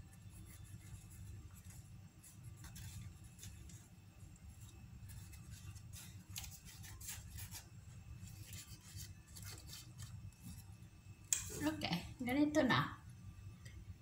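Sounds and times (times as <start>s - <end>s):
low steady hum: 0.0s - 14.0s
paper and pastry crinkling: 0.1s - 10.8s.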